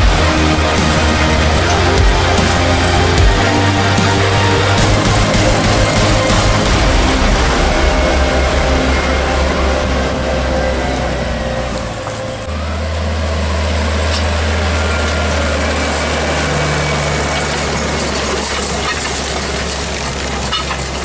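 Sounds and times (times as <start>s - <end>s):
tractor engine running under load: 0.0s - 21.0s
harrow discs hissing through soil: 13.8s - 21.0s.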